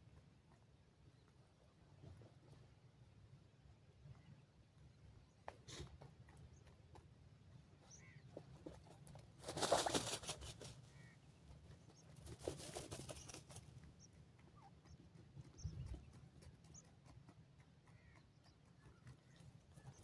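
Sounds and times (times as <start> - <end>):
rustling of earth and feathers: 0.2 - 20.0
soft high chick peeps: 9.8 - 20.0.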